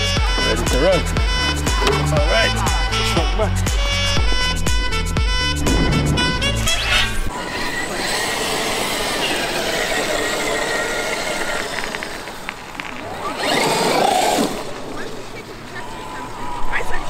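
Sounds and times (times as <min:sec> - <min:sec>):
background music: 0:00.0 - 0:07.3
electric motor whining: 0:00.0 - 0:16.6.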